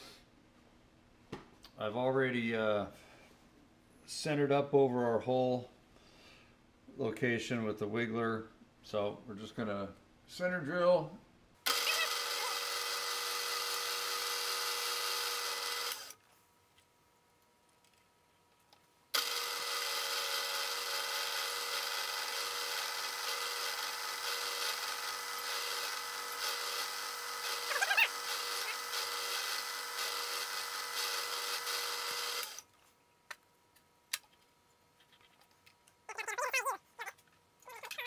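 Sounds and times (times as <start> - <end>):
drill cutting hiss: 11.7 - 16.2, 19.2 - 32.6
milling machine hum: 19.2 - 32.6.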